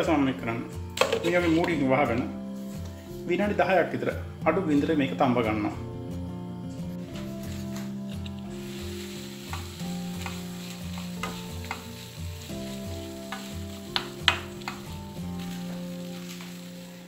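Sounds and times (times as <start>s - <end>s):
utensil scraping and tapping pan: 1.0s - 1.8s, 9.5s - 12.0s, 13.2s - 15.0s
food frying in a pan: 8.5s - 17.0s.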